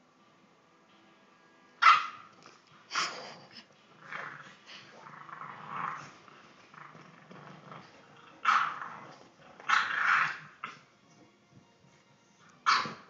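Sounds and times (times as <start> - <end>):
puppy growling and grunting: 2.9 - 10.9.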